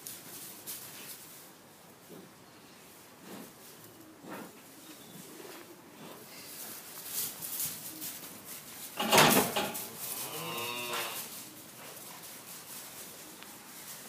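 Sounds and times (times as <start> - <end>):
calf mooing: 10.1 - 11.4.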